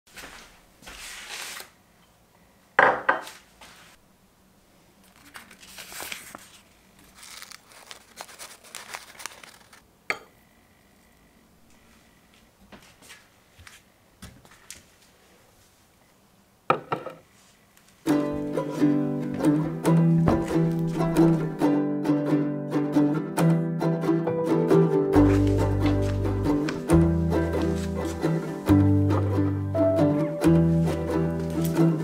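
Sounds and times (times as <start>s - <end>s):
wrapper crinkling and rustling: 5.0s - 9.8s
glass clink: 10.1s - 10.3s.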